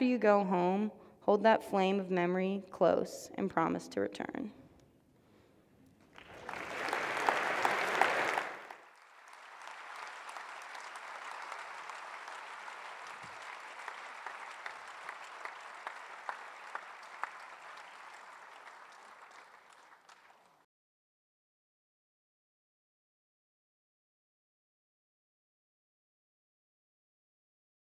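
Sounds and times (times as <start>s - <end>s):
audience applauding: 6.0s - 20.6s.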